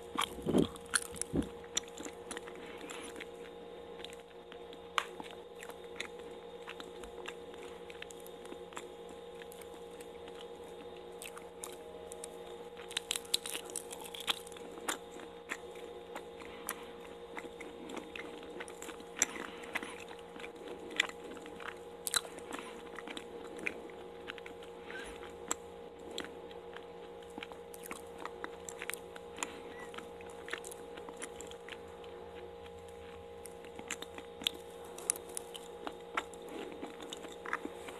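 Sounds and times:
steady low hum: 0.0s - 37.9s
wet chewing mouth clicks: 33.0s - 37.9s.

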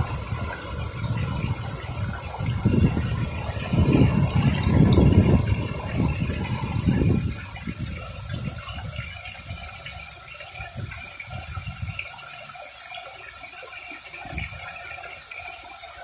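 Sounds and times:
low rumbles: 0.0s - 9.7s
fountain jets splashing: 0.0s - 16.0s.

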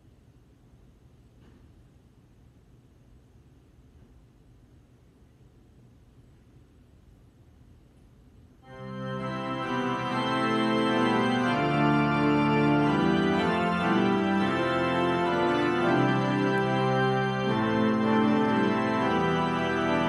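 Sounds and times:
organ playing sustained chords: 8.6s - 20.0s.

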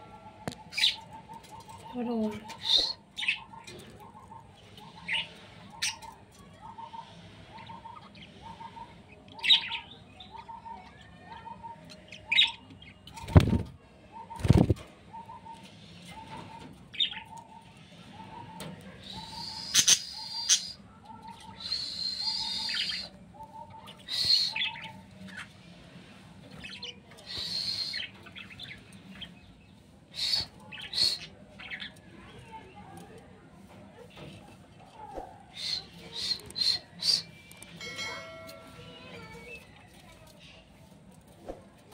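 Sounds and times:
budgerigars chirping and warbling: 0.6s - 13.4s.

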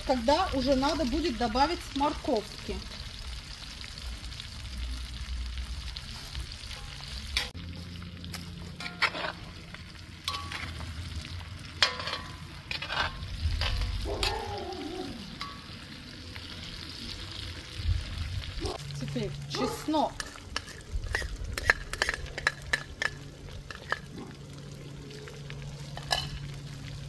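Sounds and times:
food sizzling in hot oil: 0.0s - 27.0s
metal spatula scraping pan: 8.8s - 10.8s, 11.8s - 14.0s, 20.2s - 24.1s.

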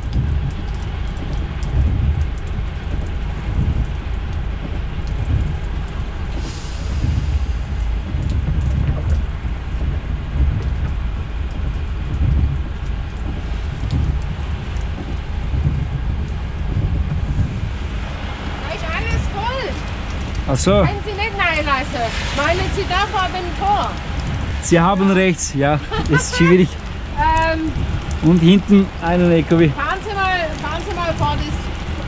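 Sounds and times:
light ticks: 0.0s - 17.5s
diesel engine rumbling: 0.0s - 32.0s.

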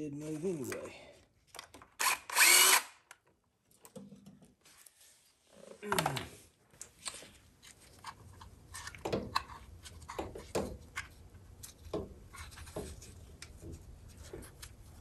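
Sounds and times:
power tool winding down: 2.0s - 2.9s.

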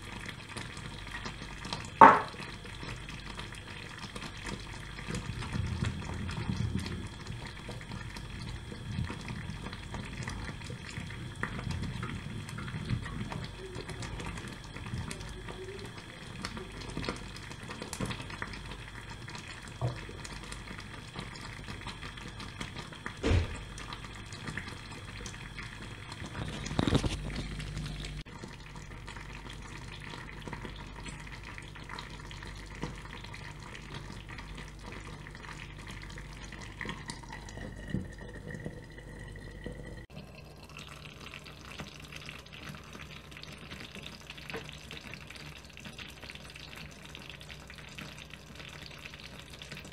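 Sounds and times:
thick stew bubbling: 0.0s - 49.9s
loud knocks: 2.0s - 2.3s, 23.2s - 23.7s.

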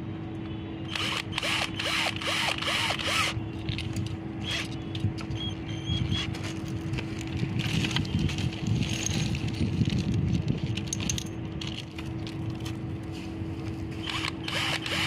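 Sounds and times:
cordless drill whirring: 0.9s - 3.4s, 14.0s - 15.0s.

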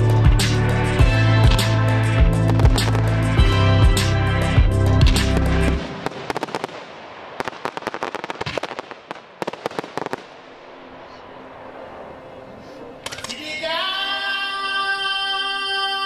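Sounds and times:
fireworks popping and cracking: 2.4s - 3.4s, 5.0s - 10.4s.

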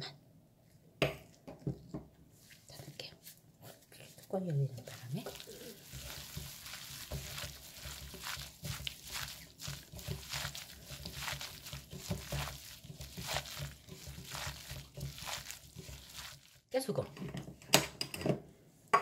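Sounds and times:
wet squelches of mixing: 0.8s - 17.6s
plastic glove rustling: 2.3s - 16.8s.

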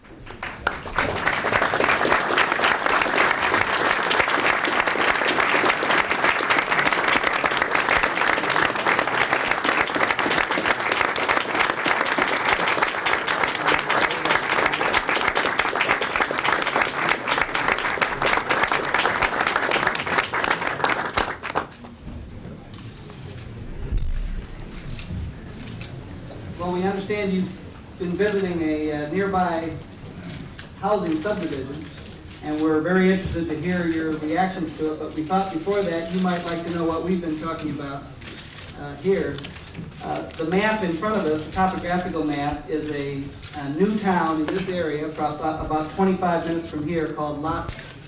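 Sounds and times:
audience applauding: 0.1s - 21.8s.

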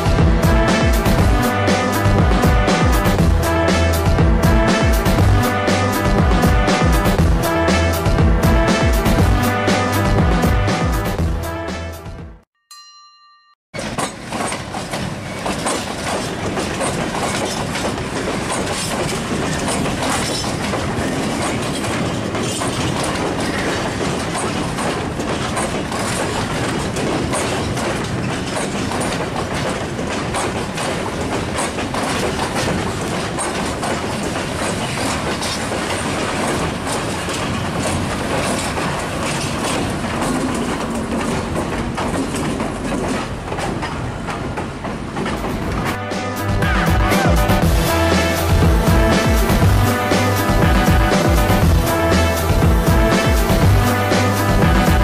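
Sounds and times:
diesel locomotive engine: 0.0s - 12.2s, 13.8s - 55.0s
freight wagon wheels clacking on rails: 13.8s - 55.0s.

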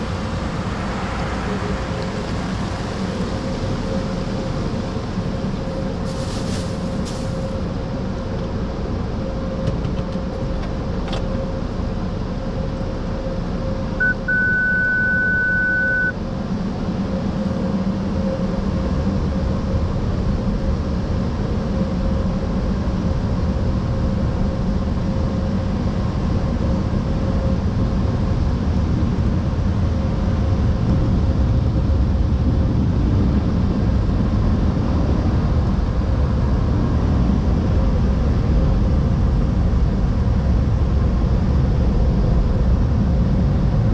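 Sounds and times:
rushing air and water: 0.0s - 7.2s
constant hum: 0.0s - 43.9s
electronic beep: 14.0s - 16.2s.

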